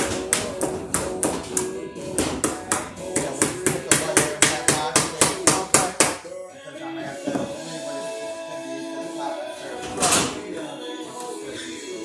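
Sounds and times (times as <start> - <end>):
rapid hammer strikes: 0.0 - 6.2
background music: 0.0 - 12.0.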